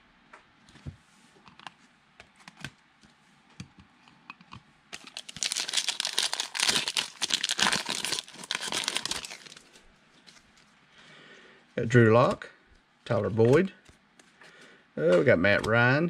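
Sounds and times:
card pack wrapper crinkling: 5.0 - 10.6.

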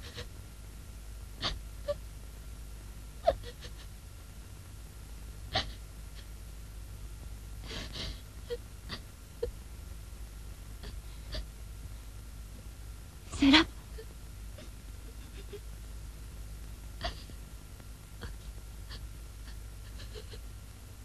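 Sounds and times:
low hum: 0.0 - 21.0
woman sobbing: 3.2 - 3.9, 5.5 - 6.3, 7.6 - 9.0, 13.4 - 15.6, 17.0 - 17.4, 18.2 - 20.4.

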